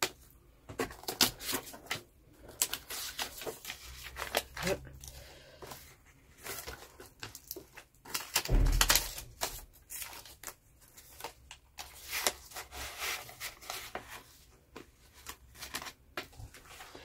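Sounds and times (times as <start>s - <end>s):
banknotes rustling: 0.1s - 17.0s
low thump: 8.5s - 9.2s.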